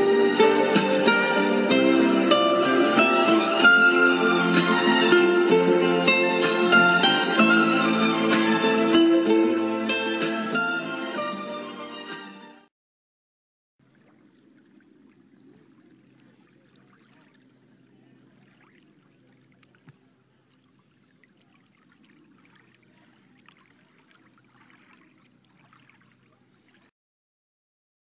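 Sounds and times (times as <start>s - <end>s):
small waves lapping on pebbles: 13.8s - 26.9s.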